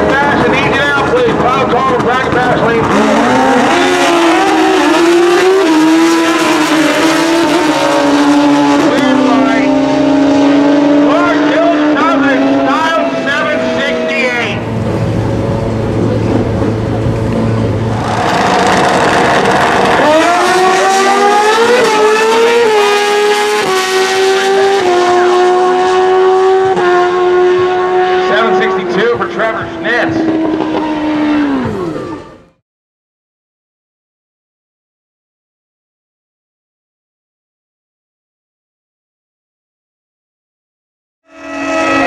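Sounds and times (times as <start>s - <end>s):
motorcycles at full throttle: 0.0s - 32.6s, 41.3s - 42.0s.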